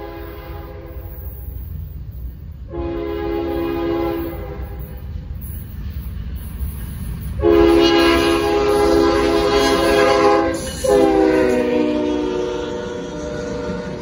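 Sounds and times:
locomotive air horn blast: 0:00.0 - 0:01.3, 0:02.7 - 0:04.8, 0:07.4 - 0:14.0
low rumble of train: 0:00.0 - 0:14.0.

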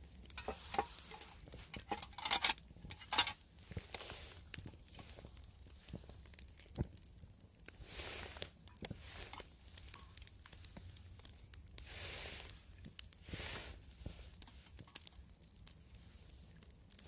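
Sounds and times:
twigs crackling in stove: 0:00.0 - 0:17.0
metal tongs clicking on cup: 0:00.4 - 0:03.4.

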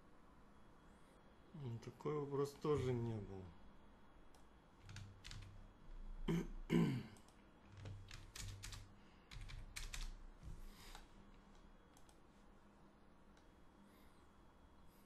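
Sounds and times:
keyboard typing: 0:04.8 - 0:05.6, 0:07.2 - 0:10.2.

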